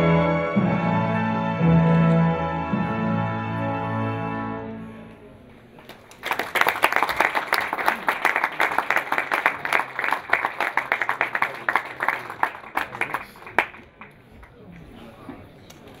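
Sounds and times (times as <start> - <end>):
audience applauding: 5.8 - 14.2.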